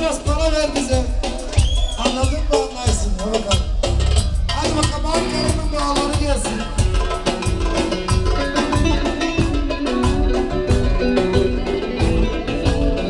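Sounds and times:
drum beat: 0.0s - 13.0s
live band playing dance music: 0.0s - 13.0s
electric bass: 3.6s - 13.0s.

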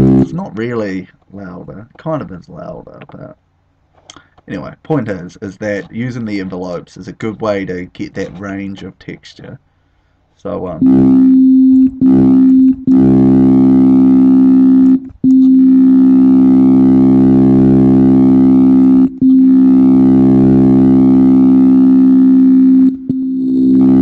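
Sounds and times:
synthesizer tone: 0.0s - 0.4s, 10.8s - 24.0s.

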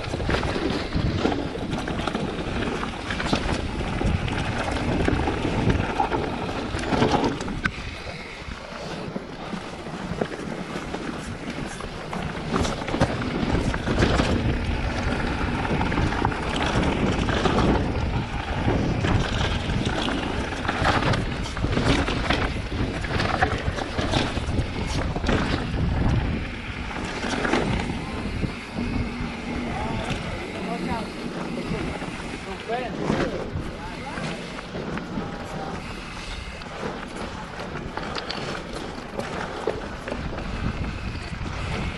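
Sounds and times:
bike knocking and rattling: 0.0s - 41.9s
tyres on loose dirt and rock: 0.0s - 41.9s
wind rushing over microphone: 0.0s - 41.9s.

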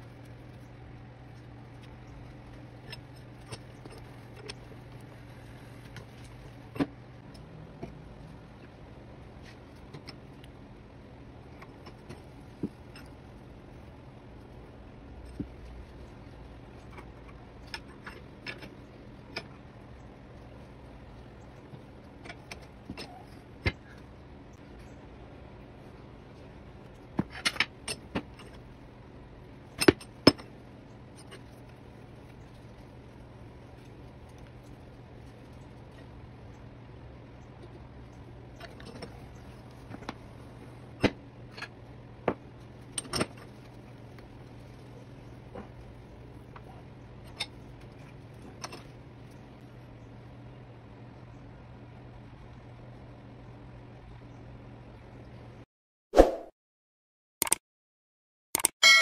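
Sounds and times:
low steady hum: 0.0s - 55.7s.

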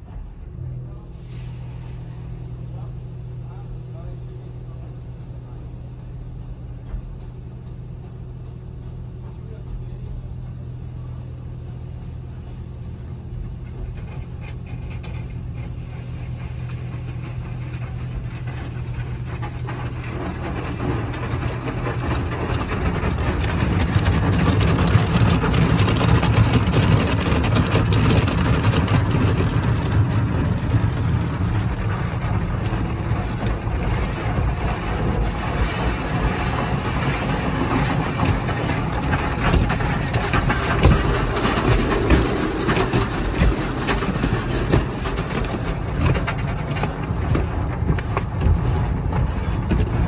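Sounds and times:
steady low hum: 0.0s - 50.0s
car wash brushes swishing: 32.6s - 50.0s.

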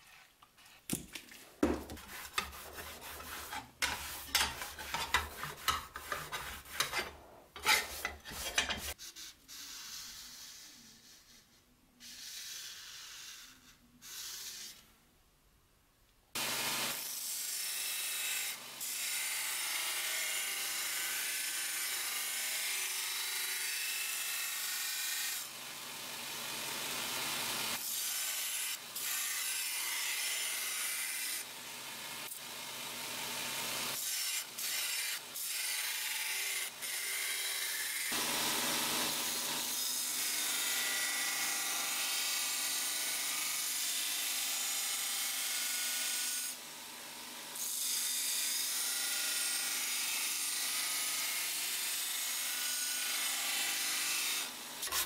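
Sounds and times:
marker scratching on steel: 1.9s - 14.9s
belt grinder grinding metal: 2.0s - 9.0s, 52.5s - 55.0s.

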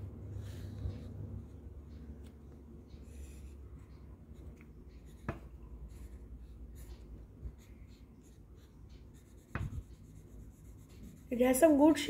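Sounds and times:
pencil scratching on paper: 2.9s - 11.6s.

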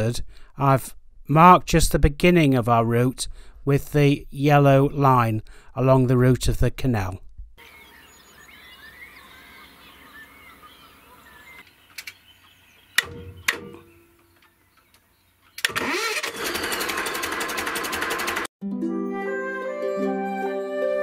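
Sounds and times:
starter clicks: 11.9s - 12.2s, 13.0s - 18.5s
diesel engine running: 15.8s - 18.5s.

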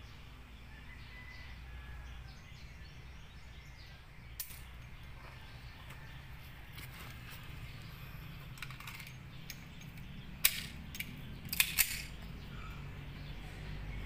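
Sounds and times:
metallic clicks of pistol handling: 8.6s - 12.3s.

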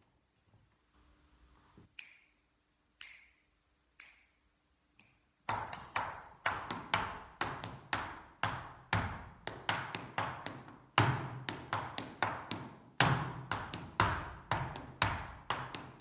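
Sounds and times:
hard-soled dance steps tapping: 5.5s - 16.0s.

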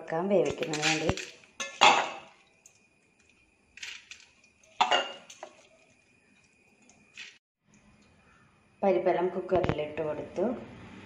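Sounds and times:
lentils clattering into a pot: 0.4s - 6.0s.

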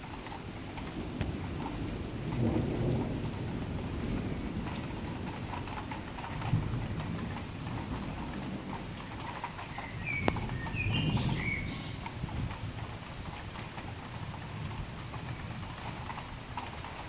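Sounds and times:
steady rain: 0.0s - 17.0s
rolling thunder: 0.9s - 9.0s, 9.8s - 12.9s.

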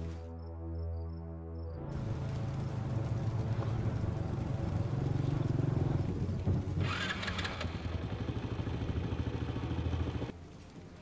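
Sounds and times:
motorcycle engine running: 2.0s - 10.3s.

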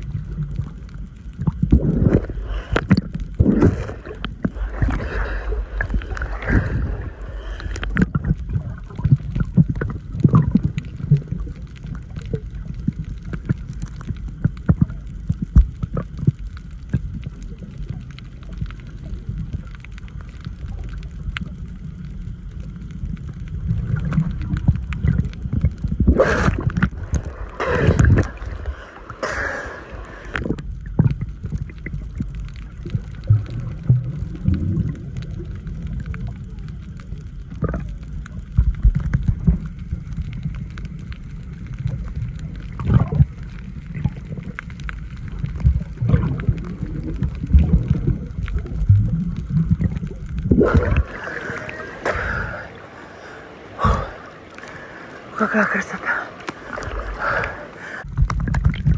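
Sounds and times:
underwater clicks: 0.0s - 22.2s, 23.1s - 55.0s, 56.3s - 58.9s
muffled underwater rumble: 0.0s - 58.9s
water gurgling: 0.0s - 58.9s
rushing surges of water: 1.7s - 13.4s, 23.5s - 36.7s, 41.8s - 58.9s.

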